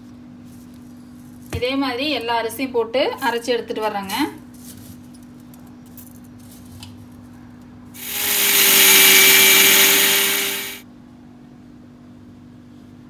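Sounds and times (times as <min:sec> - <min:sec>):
mixer grinder grinding rice: 0:08.0 - 0:10.8.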